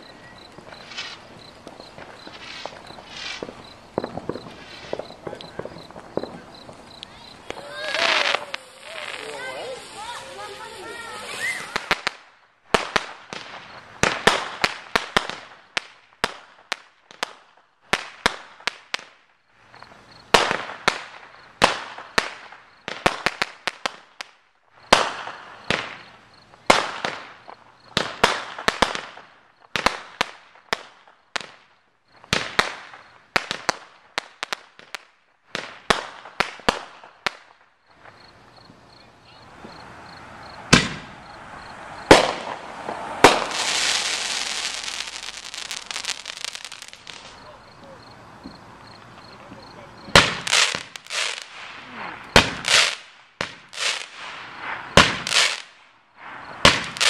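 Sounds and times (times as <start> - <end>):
fireworks hiss: 0.0 - 16.4, 32.2 - 57.0
fireworks bangs and crackling: 0.0 - 57.0.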